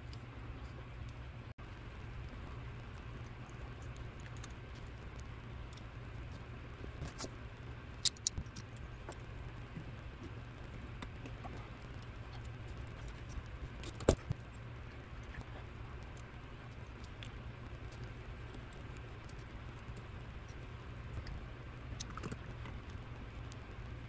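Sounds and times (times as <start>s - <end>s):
faint low hum: 0.0s - 24.0s
small metal parts clicking: 8.0s - 8.8s.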